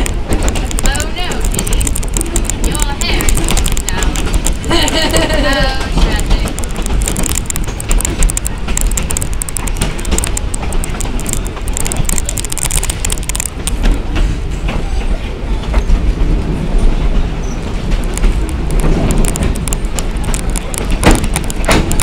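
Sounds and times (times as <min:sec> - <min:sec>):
rail clicks: 0:00.0 - 0:22.0
train wheels rumbling on track: 0:00.0 - 0:22.0.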